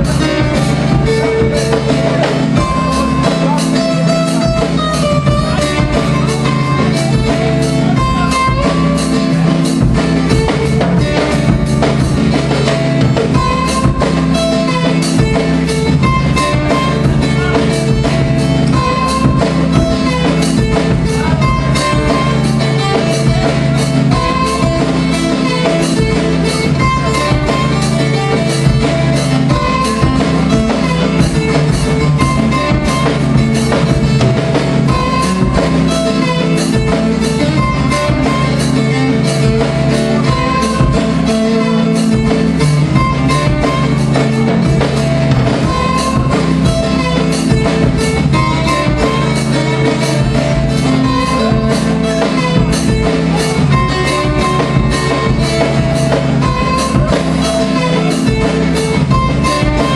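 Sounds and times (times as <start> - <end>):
drums keeping a beat: 0.0 - 59.9
strummed acoustic guitar: 0.0 - 59.9.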